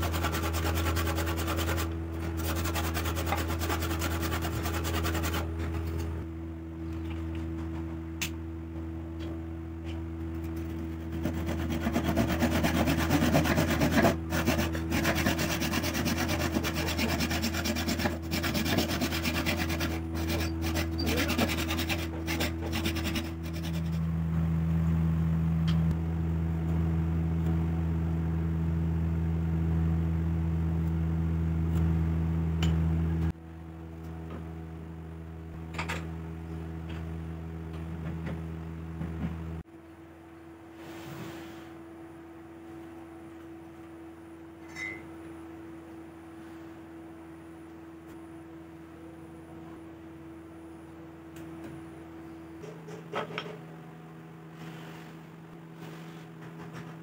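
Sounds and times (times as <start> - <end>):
handsaw cutting wood: 0.0 - 5.5, 10.8 - 24.1
low hum: 0.0 - 40.6.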